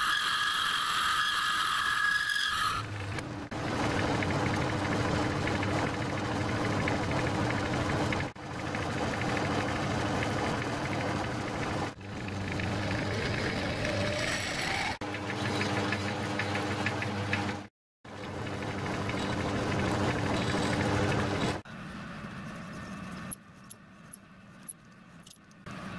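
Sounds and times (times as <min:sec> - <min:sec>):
lathe motor hum: 0:15.0 - 0:21.6.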